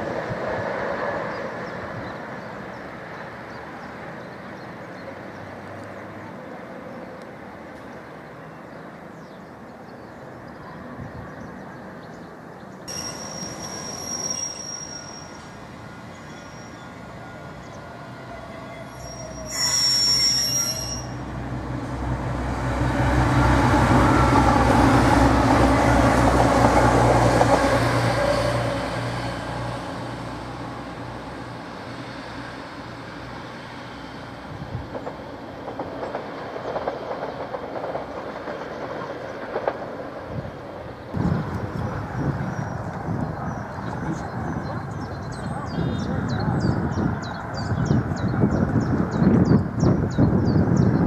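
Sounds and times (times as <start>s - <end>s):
diesel train approaching: 0.0s - 51.0s
diesel train passing: 0.0s - 51.0s
high-pitched squeals: 12.9s - 21.2s.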